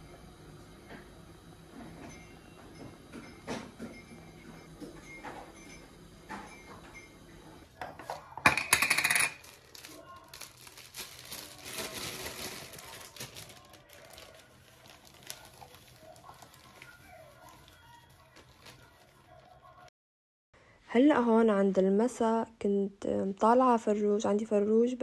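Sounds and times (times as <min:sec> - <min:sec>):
plastic bag crinkling: 0:09.2 - 0:19.8.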